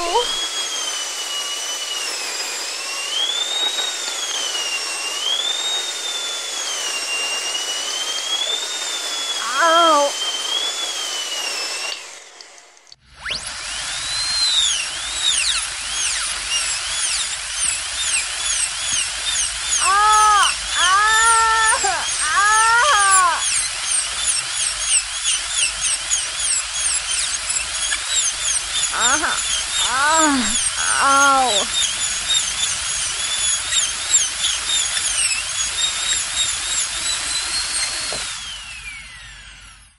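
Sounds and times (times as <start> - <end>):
child whimpering: 0.0 - 0.4, 9.4 - 10.2, 19.8 - 23.4, 29.0 - 31.7
dental drill whining: 0.0 - 39.9.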